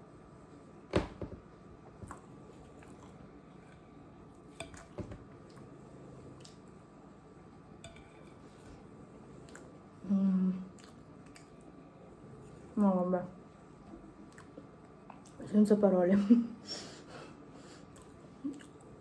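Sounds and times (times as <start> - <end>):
soft chewing: 1.8 - 7.0, 7.8 - 12.8, 13.6 - 15.5, 17.8 - 19.0.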